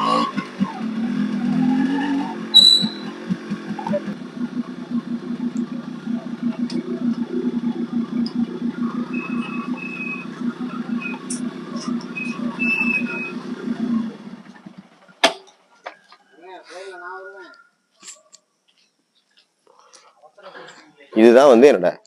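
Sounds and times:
motorcycle engine puttering: 0.0s - 16.0s.

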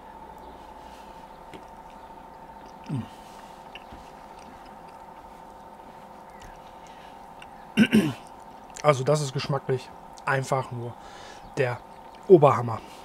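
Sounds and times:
steady background hum: 0.0s - 13.0s
man chewing food: 0.2s - 8.9s
man saying mmm: 2.8s - 3.2s.

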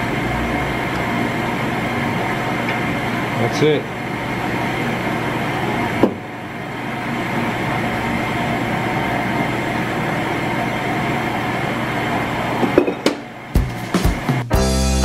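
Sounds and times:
honing machine humming: 0.0s - 14.4s.

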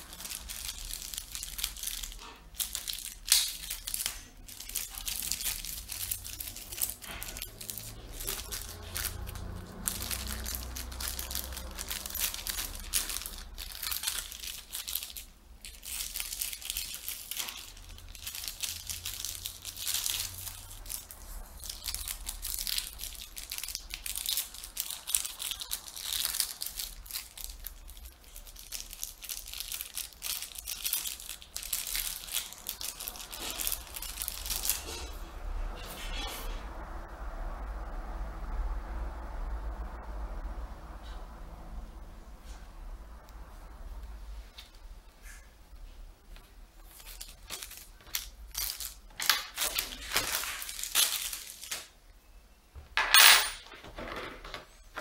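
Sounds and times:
plastic bags crinkling: 0.0s - 35.2s, 46.7s - 52.0s.

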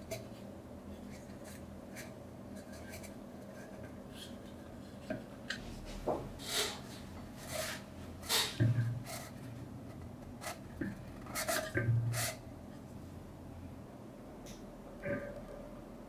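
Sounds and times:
lamp wick rubbing and scraping: 6.4s - 9.6s, 10.4s - 12.4s.

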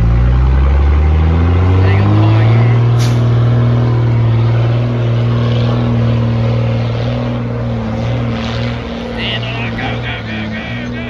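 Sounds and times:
truck engine pulling under load: 0.0s - 11.0s.

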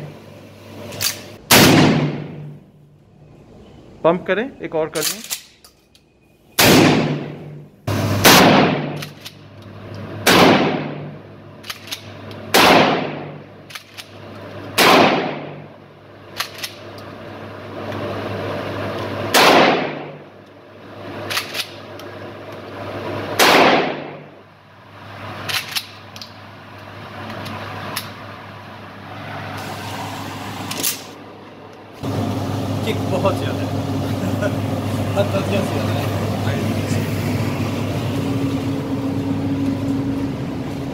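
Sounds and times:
shotgun shots echoing indoors: 1.5s - 2.6s, 6.6s - 7.6s, 8.2s - 9.2s, 10.2s - 11.2s, 12.5s - 13.4s, 14.8s - 15.7s, 19.3s - 20.2s, 23.4s - 24.3s.

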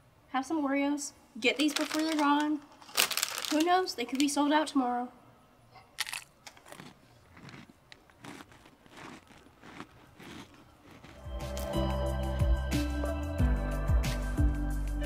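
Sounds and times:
quiet chewing: 5.8s - 11.7s
biting into crunchy cookie: 6.0s - 11.2s.

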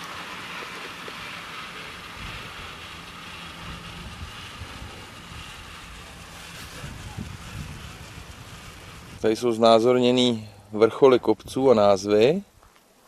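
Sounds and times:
low rumble: 0.0s - 11.7s
wind on microphone: 2.1s - 9.8s.

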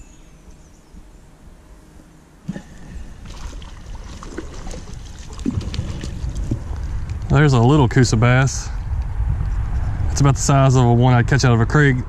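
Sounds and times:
faint water: 2.4s - 7.8s
fish splashing at the surface: 2.5s - 6.6s.

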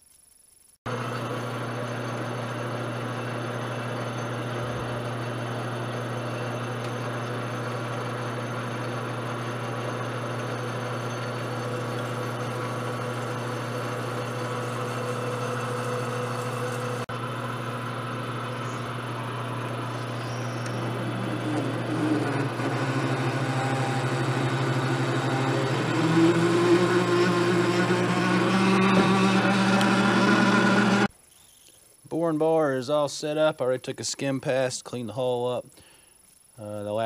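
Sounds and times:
drill cutting metal: 0.9s - 17.1s, 18.3s - 31.1s
metal lathe motor hum: 0.9s - 31.1s.

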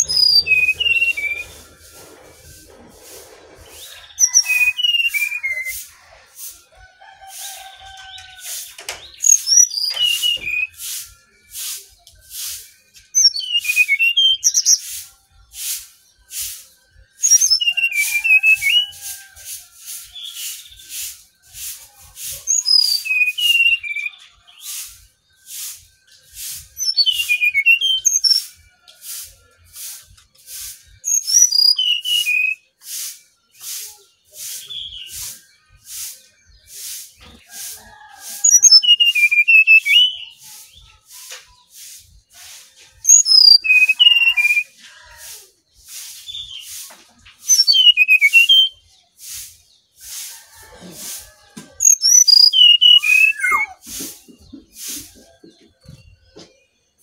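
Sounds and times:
bird singing whistled notes: 0.0s - 2.6s, 3.7s - 5.9s, 9.0s - 19.1s, 20.0s - 21.7s, 22.5s - 28.7s, 31.0s - 37.0s, 38.0s - 41.7s, 43.1s - 44.8s, 47.5s - 48.9s, 51.8s - 53.9s
pulsing hiss: 0.0s - 4.5s.

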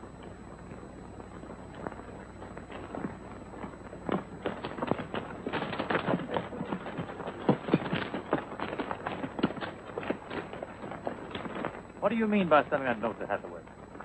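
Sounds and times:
horse hooves on rocky ground: 0.0s - 14.0s.

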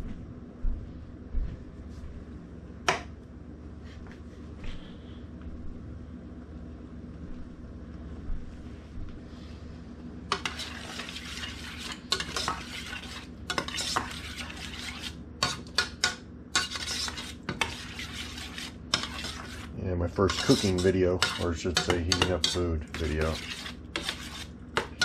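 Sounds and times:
low steady hum: 0.0s - 25.0s
metal spoon scraping a saucepan: 10.3s - 25.0s.

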